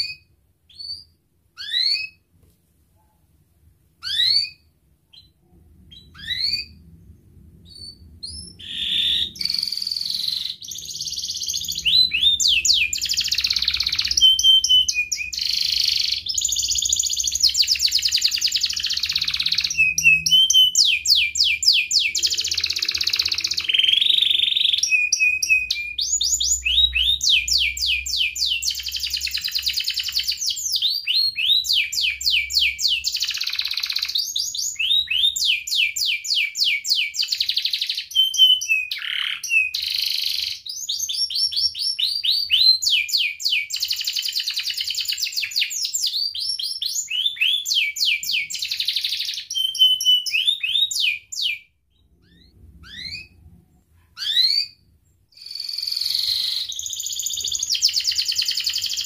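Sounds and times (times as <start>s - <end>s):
canary singing trills: 0.0s - 2.3s, 4.0s - 53.6s, 54.2s - 59.0s.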